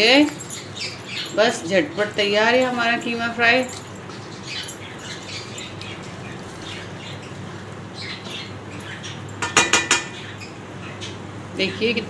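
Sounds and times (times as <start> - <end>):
spatula knocking on steel pan: 9.4 - 10.2.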